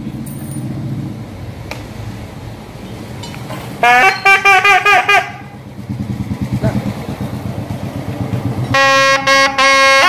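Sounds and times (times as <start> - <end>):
double-reed pipe blaring: 3.8 - 6.0, 8.4 - 10.0.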